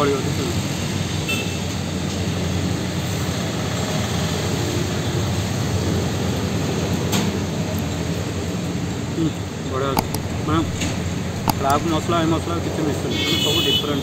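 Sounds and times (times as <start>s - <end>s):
sharp click: 10.0s - 12.1s
low engine hum: 10.1s - 12.6s.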